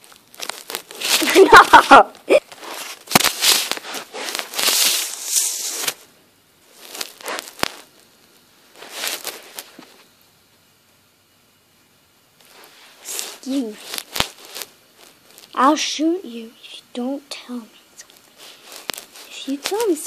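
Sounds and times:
camera handling rustling on carpet: 8.8s - 10.1s.

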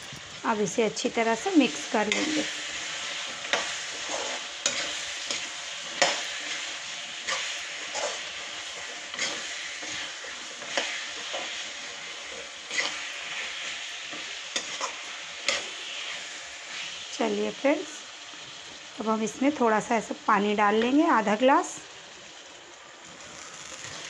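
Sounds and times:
food sizzling in oil: 0.0s - 24.0s
metal spatula scraping a pan: 1.7s - 17.0s.

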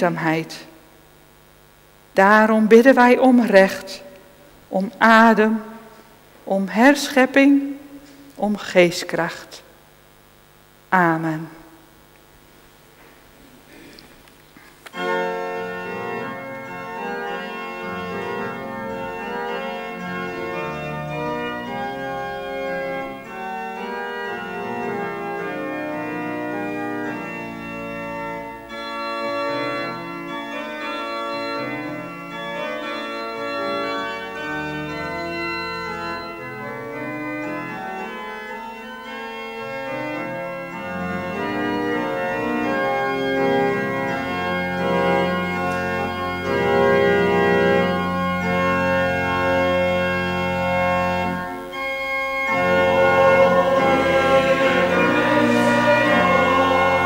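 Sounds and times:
church organ playing a hymn: 14.8s - 57.0s.

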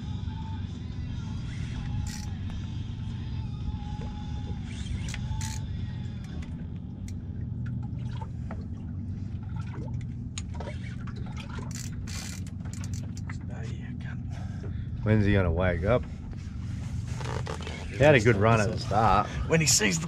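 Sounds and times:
steady low rumble: 0.0s - 20.0s
water lapping against boat hull: 7.3s - 13.6s.

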